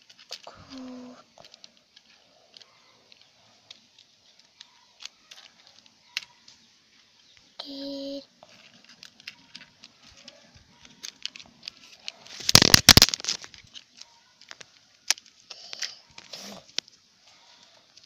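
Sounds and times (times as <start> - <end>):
toy trucks on concrete floor: 0.0 - 18.0
phone handling rustle: 8.5 - 17.0.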